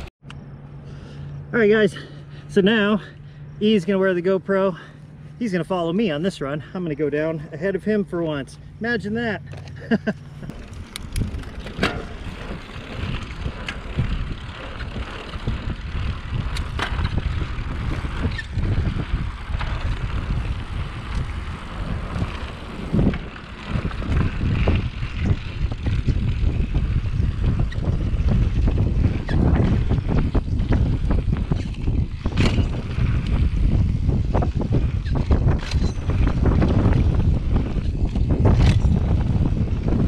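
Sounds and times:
wind buffeting microphone: 5.1 - 40.0
bike clicks and knocks: 9.4 - 39.5.

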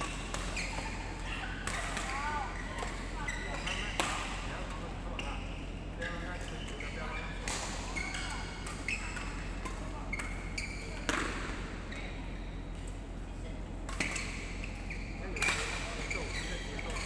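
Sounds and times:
rackets hitting shuttlecocks: 7.4 - 11.7.

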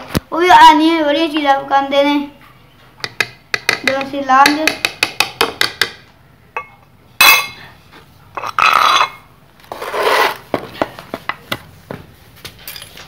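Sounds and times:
dishes clattering: 6.6 - 7.6
spoon scraping dishes: 8.4 - 10.5.

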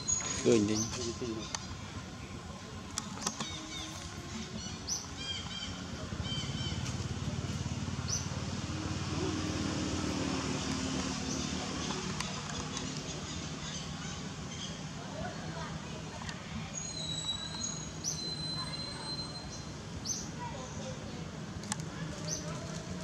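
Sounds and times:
birds chirping: 0.0 - 21.3, 22.1 - 23.0
motor engine droning: 1.4 - 13.6.

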